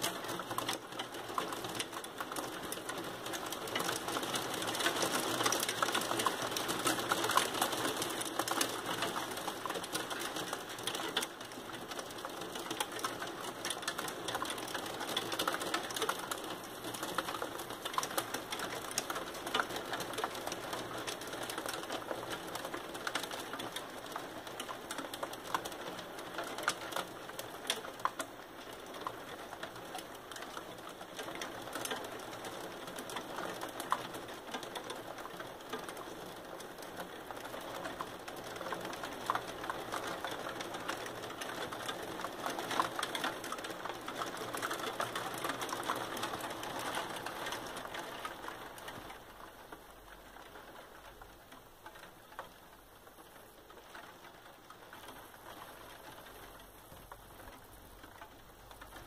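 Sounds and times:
hail and rain on glass: 0:00.0 - 0:59.0.

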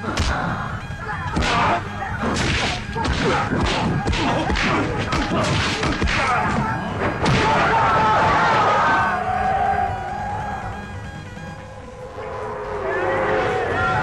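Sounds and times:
film background score: 0:00.0 - 0:14.0
punch and kick impacts: 0:01.4 - 0:07.6.

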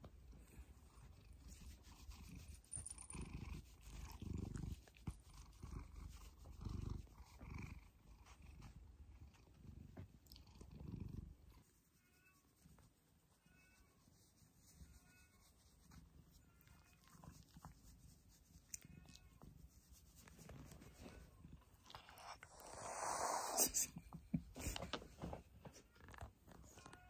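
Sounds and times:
cat purring: 0:00.1 - 0:11.8, 0:15.8 - 0:25.2.

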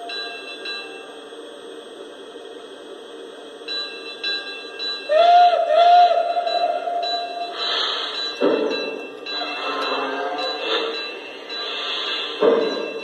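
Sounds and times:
locomotive bell striking: 0:00.0 - 0:01.2, 0:03.7 - 0:05.1, 0:06.2 - 0:13.0
steam whistle blasts: 0:05.1 - 0:08.8, 0:09.4 - 0:11.0.

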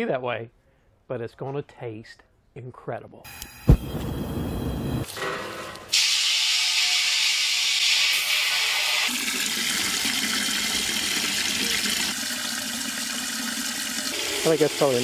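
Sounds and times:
hose spraying into metal pot: 0:05.9 - 0:10.1, 0:14.1 - 0:15.0.

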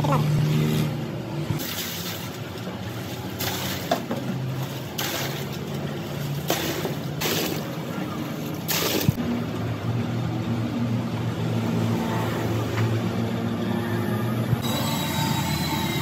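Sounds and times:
plaster sloshing in a drum: 0:01.6 - 0:09.2.

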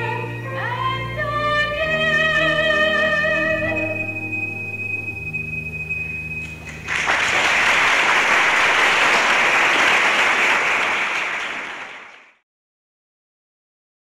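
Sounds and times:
audience applause: 0:06.5 - 0:12.4.

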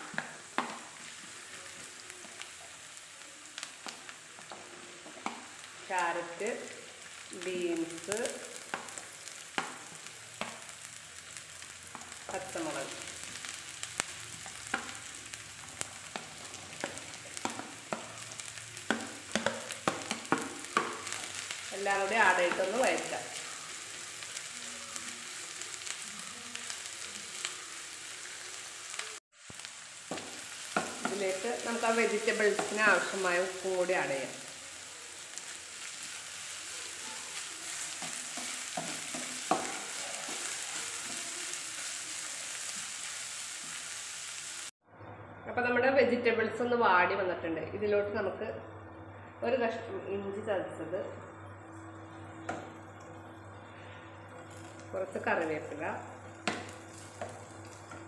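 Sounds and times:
vegetables sizzling in a pan: 0:00.0 - 0:44.8, 0:51.0 - 0:58.0
spatula tapping plate and pan: 0:18.9 - 0:21.0
spatula stirring and scraping: 0:35.8 - 0:41.6.

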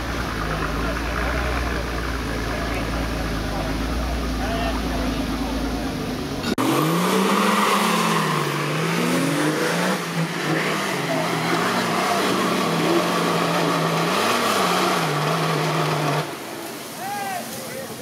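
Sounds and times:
engine at high revs under load: 0:06.4 - 0:16.4.

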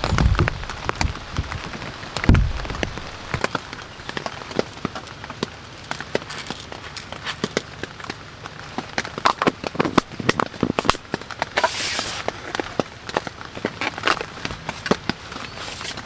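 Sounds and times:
rain pattering on tent: 0:00.0 - 0:16.0.

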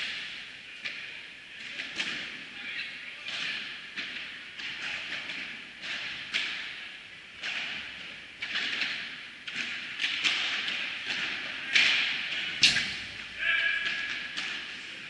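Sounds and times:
ball struck by rackets: 0:03.3 - 0:06.8, 0:07.4 - 0:14.8.

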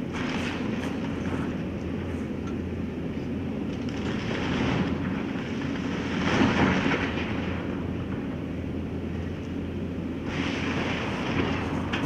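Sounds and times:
large engine humming rumble: 0:00.0 - 0:12.0.

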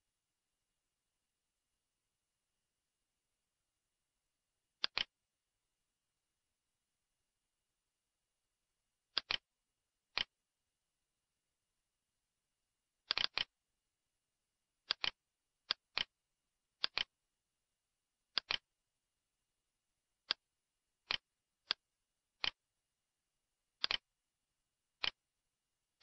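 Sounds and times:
computer mouse button clicking: 0:04.8 - 0:05.1, 0:09.2 - 0:09.4, 0:13.1 - 0:13.5, 0:16.8 - 0:17.1, 0:18.4 - 0:18.6.

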